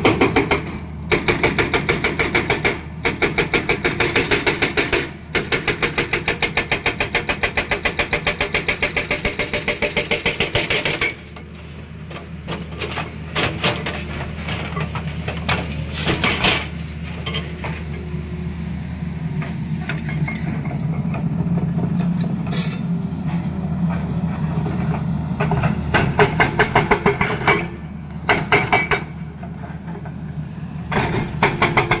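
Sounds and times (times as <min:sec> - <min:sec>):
hydraulic breaker hammering rock: 0:00.0 - 0:11.3, 0:25.4 - 0:29.2, 0:30.9 - 0:32.0
diesel engine running: 0:11.1 - 0:32.0
engine knocks: 0:30.9 - 0:32.0.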